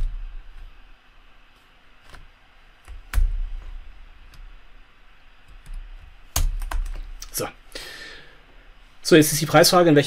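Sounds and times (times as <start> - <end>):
computer keyboard keystrokes: 5.5 - 7.3.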